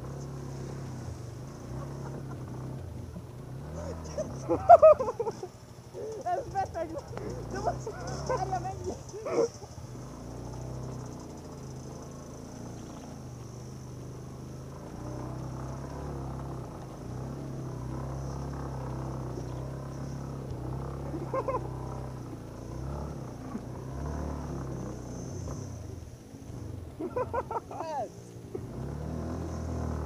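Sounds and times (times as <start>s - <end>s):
motorcycle engine pulling uphill: 0.0s - 30.0s.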